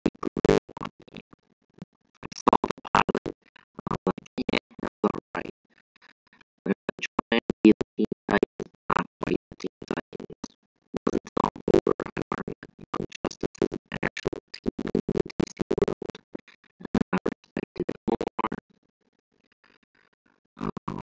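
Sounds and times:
scratch-like stutters: 11.0s - 16.2s.

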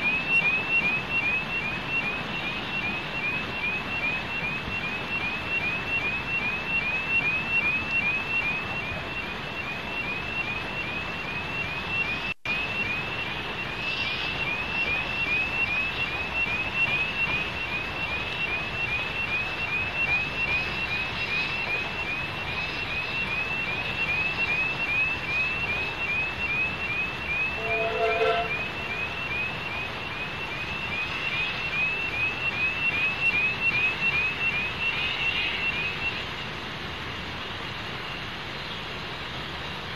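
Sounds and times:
level crossing alarm chirping: 0.0s - 36.3s
steam train rumbling past: 27.4s - 28.8s
low train whistle toot: 27.5s - 28.7s.

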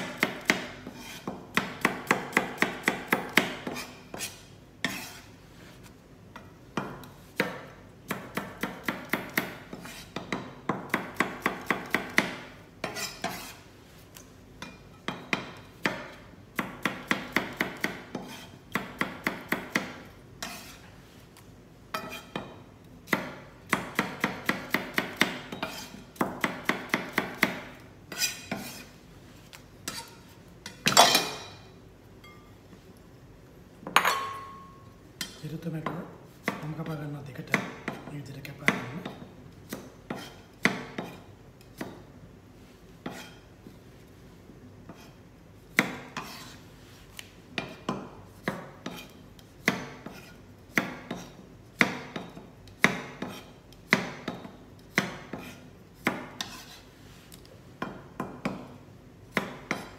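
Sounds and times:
knife chopping on plastic board: 0.0s - 5.0s, 23.1s - 28.8s, 37.5s - 42.0s, 47.6s - 56.7s, 57.8s - 59.9s
knife blade scraping board: 0.5s - 1.4s, 3.6s - 5.4s, 9.7s - 10.2s, 12.8s - 13.6s, 18.1s - 18.6s, 20.4s - 20.9s, 22.0s - 22.4s, 25.5s - 26.0s, 28.1s - 29.0s, 29.9s - 30.2s, 43.0s - 43.4s, 44.9s - 45.2s, 45.9s - 47.2s, 48.8s - 49.2s, 50.0s - 50.4s, 55.3s - 57.4s.

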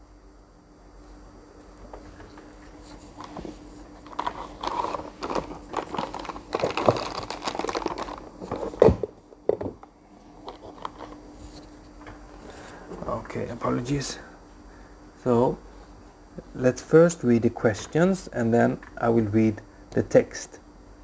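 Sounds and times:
faint steady hum: 0.0s - 21.0s
crinkling and rustling: 1.8s - 13.4s.

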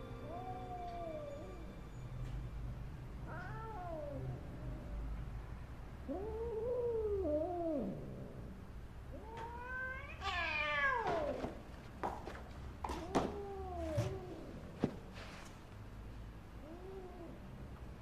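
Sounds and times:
cat yowling in distress: 0.2s - 1.6s, 3.3s - 5.0s, 13.1s - 14.5s.

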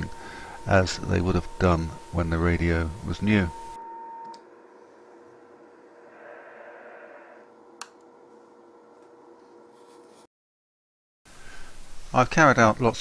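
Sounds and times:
faint steady lower tone: 0.0s - 5.9s
low hiss: 11.3s - 13.0s.

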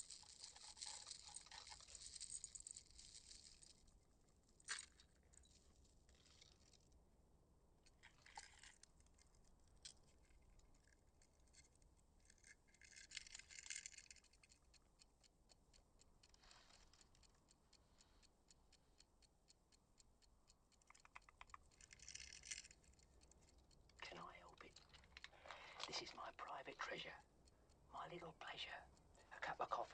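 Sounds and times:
small ticking clicks: 7.8s - 29.9s.

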